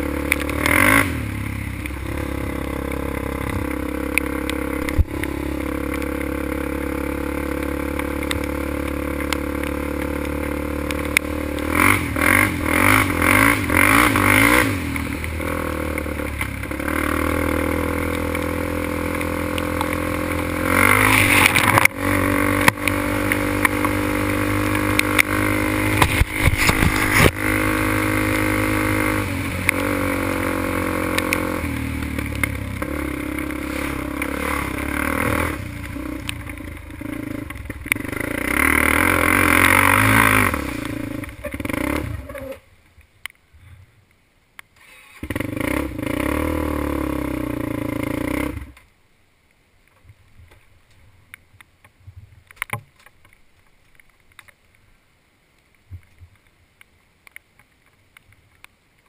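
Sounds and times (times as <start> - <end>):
quad engine revving: 0.0 - 42.6, 44.8 - 48.8.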